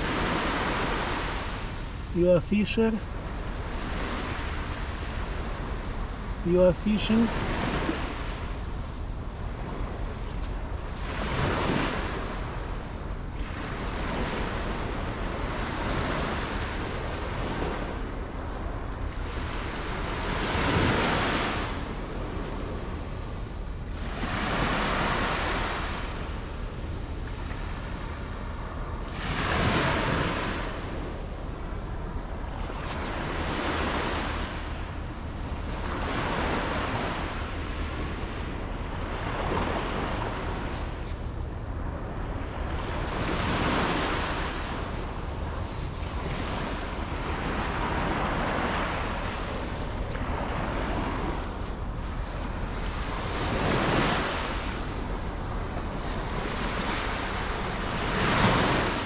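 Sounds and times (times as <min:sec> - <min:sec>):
sea waves breaking on shore: 0:00.0 - 0:59.0
wind rumble on microphone: 0:00.0 - 0:59.0.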